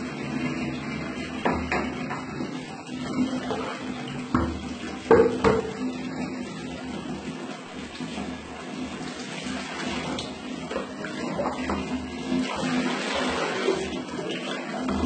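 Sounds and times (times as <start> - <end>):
tap water running and splashing: 0.0 - 15.0.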